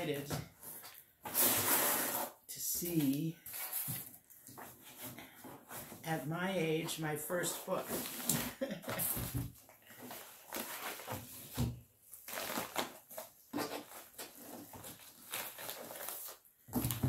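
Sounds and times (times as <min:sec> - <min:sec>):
envelope rustling and crinkling: 0:12.1 - 0:16.5.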